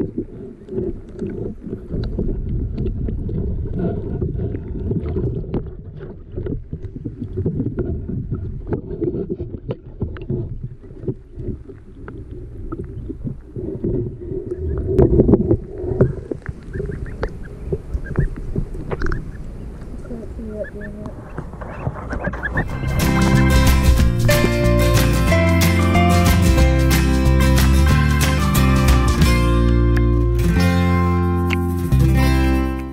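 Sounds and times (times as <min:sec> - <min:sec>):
muffled underwater sloshing: 0:00.0 - 0:24.4.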